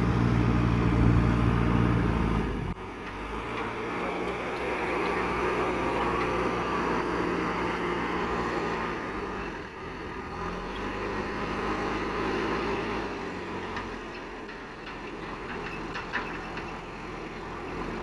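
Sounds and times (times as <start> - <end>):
loader bucket scooping soil: 0.0 - 9.6
diesel engine under hydraulic load: 0.0 - 18.0.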